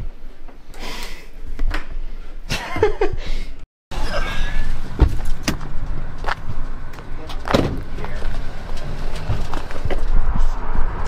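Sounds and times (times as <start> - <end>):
person laughing: 2.5 - 4.7.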